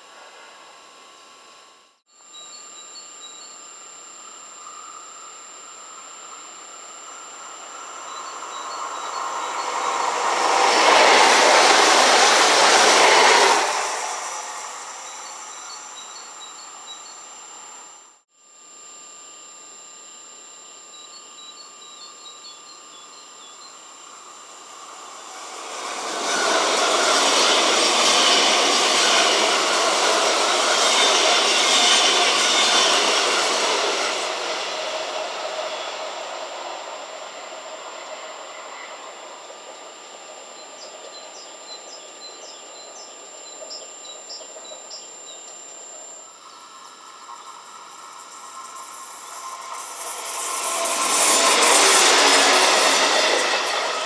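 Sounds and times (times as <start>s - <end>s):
train wheels rumbling on rails: 7.7s - 16.0s, 24.6s - 39.9s, 47.8s - 54.0s.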